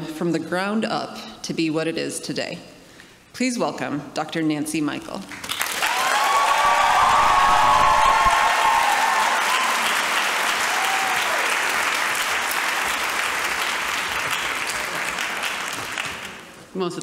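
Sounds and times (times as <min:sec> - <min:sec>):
audience applauding: 0:05.3 - 0:16.6
whoops from audience: 0:05.8 - 0:11.5.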